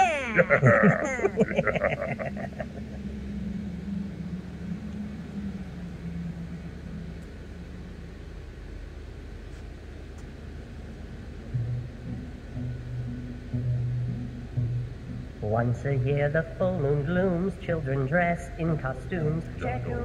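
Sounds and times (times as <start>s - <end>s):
cheering voice with echo: 0.0s - 1.7s, 19.2s - 20.0s
low background rumble: 0.0s - 20.0s
low steady hum: 0.0s - 20.0s.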